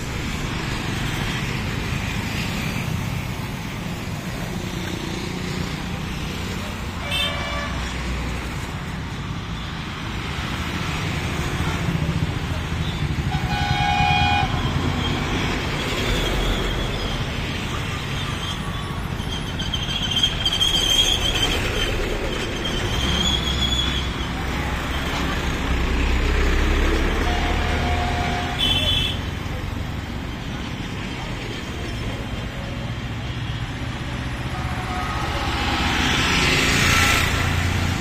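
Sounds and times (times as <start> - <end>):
road traffic engine rumble: 0.0 - 38.0
vehicle horn toots: 13.3 - 14.7, 27.2 - 29.2, 34.5 - 35.6.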